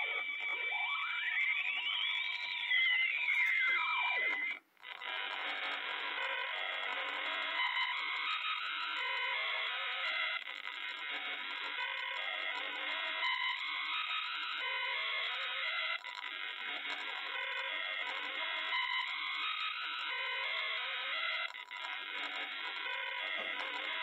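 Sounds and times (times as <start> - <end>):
gliding whistling synth tone: 0.2 - 4.5.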